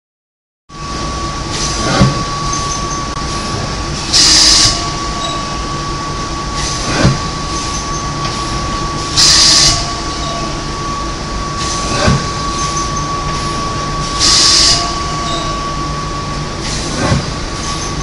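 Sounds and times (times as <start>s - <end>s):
machine drone with whine: 0.7s - 18.0s
sharp hiss of air: 4.1s - 4.8s, 9.2s - 9.9s, 14.1s - 15.0s.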